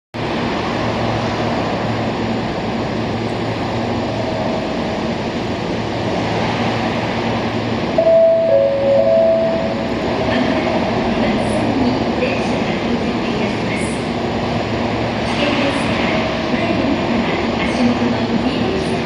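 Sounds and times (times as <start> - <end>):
electric train rolling: 0.6 - 13.0.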